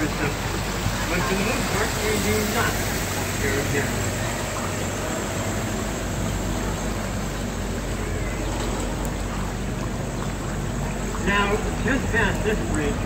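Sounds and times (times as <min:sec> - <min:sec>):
hiss of water and air: 0:00.0 - 0:07.8
boat motor hum: 0:00.0 - 0:13.0.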